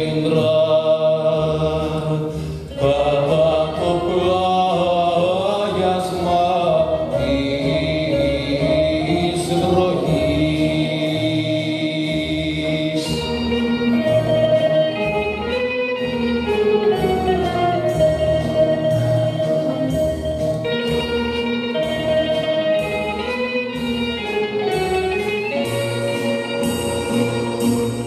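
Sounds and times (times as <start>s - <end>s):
acoustic guitars playing: 0.0s - 28.0s
keyboard playing: 0.0s - 28.0s.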